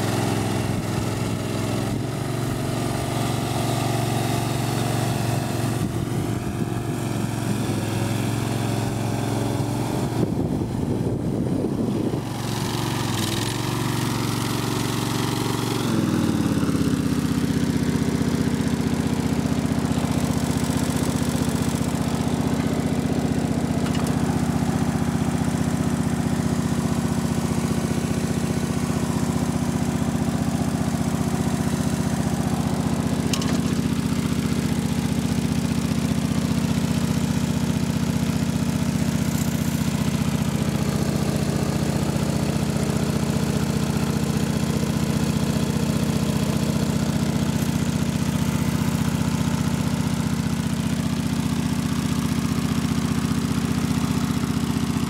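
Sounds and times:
mower engine running: 0.0 - 55.0.

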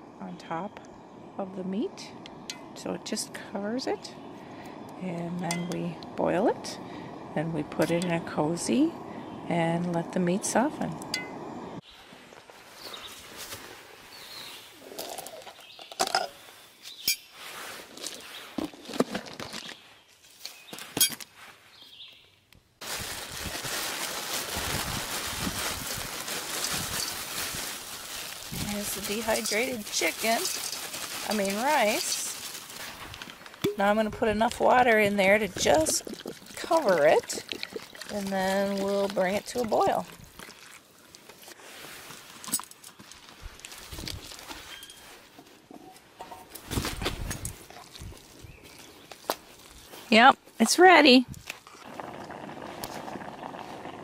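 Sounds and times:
dry food pouring into pot: 22.8 - 40.8
plastic bag crinkling: 22.8 - 41.5.

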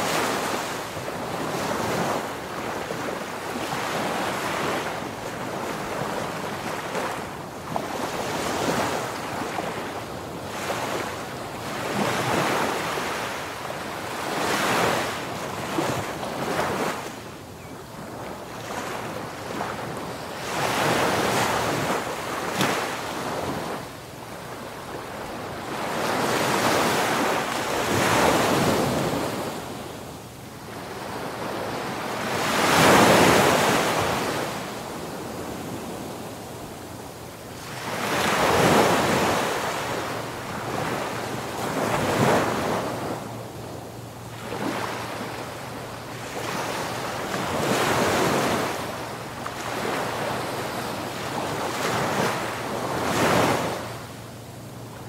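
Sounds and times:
sea waves breaking on beach: 0.0 - 17.3, 18.0 - 55.0.

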